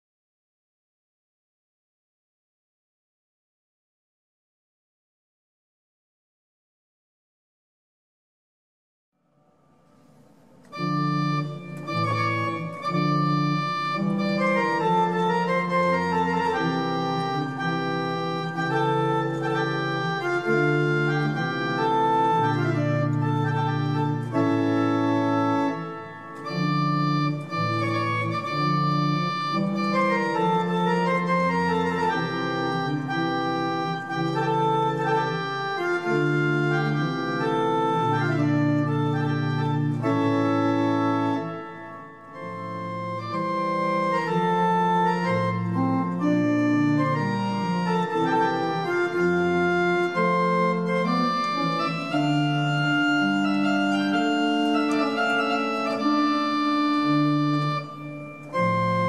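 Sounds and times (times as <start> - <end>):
pipe organ playing: 10.1 - 59.0.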